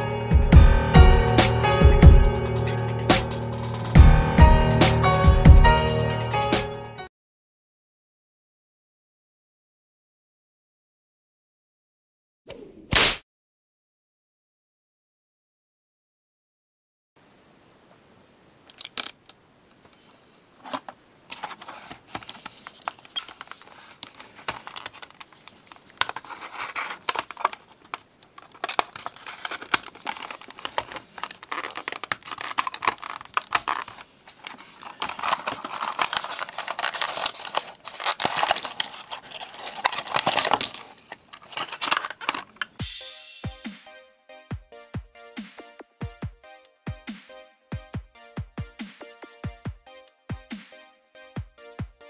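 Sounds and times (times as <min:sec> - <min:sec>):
plastic packaging crinkling: 0:18.7 - 0:19.3, 0:20.6 - 0:42.8
cardboard being cut and torn: 0:28.5 - 0:42.4
electronic music with a beat: 0:42.8 - 0:50.8.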